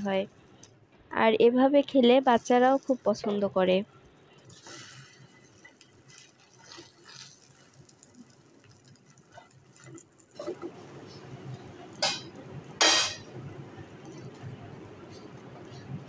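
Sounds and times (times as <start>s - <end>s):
bread sizzling in oil: 4.2s - 16.0s
spoon tapping pan: 12.0s - 13.3s.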